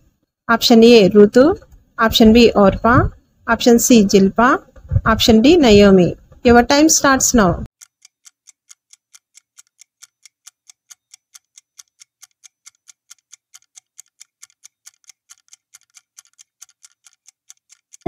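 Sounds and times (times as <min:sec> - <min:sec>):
clock ticking: 0:07.7 - 0:18.0.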